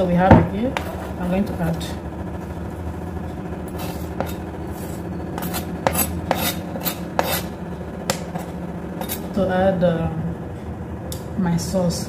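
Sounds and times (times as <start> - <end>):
steady low hum: 0.0 - 12.0
utensil scraping a dish: 3.7 - 7.5, 8.1 - 9.3.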